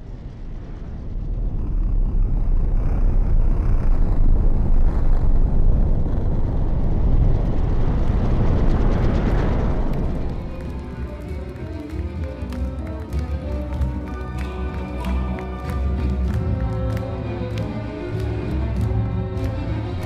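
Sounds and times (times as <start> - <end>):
low rumble of metal concert: 0.0 - 13.5.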